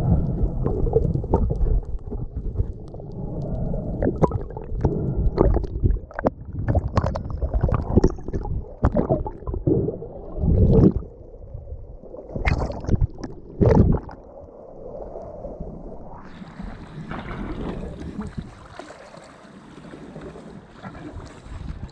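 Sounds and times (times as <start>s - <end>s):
water sloshing over camera: 0.0s - 11.1s, 12.2s - 14.3s
wind on microphone: 0.0s - 18.6s.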